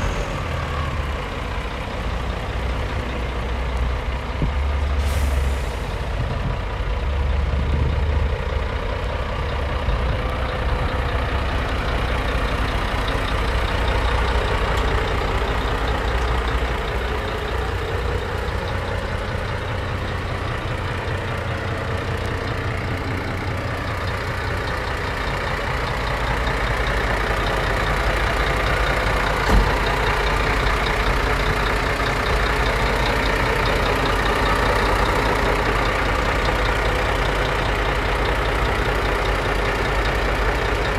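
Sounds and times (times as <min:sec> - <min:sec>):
diesel engine idling: 0:00.0 - 0:40.9.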